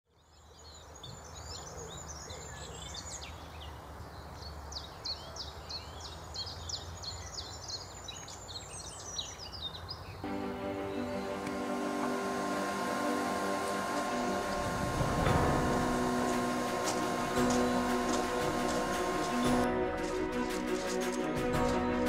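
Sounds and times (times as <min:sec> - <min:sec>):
birds chirping: 0:00.2 - 0:21.4
steady low rumble: 0:11.3 - 0:20.5.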